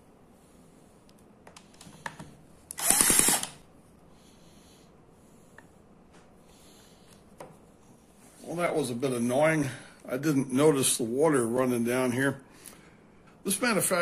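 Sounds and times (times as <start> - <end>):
cordless drill whine: 2.7 - 3.6.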